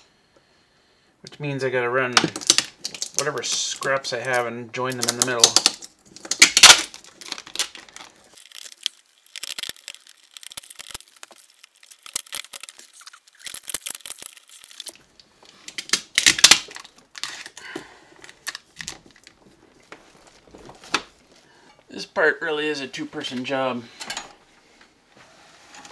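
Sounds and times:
wire scraping and rustling: 0:02.4 - 0:17.6, 0:25.2 - 0:25.9.

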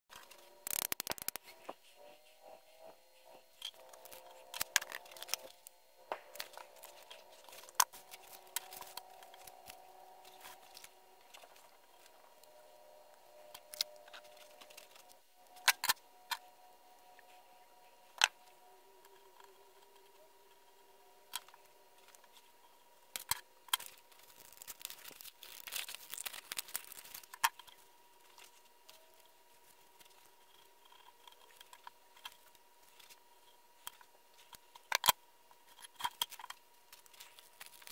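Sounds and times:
paper rustling: 0:06.2 - 0:12.3, 0:23.8 - 0:30.3.

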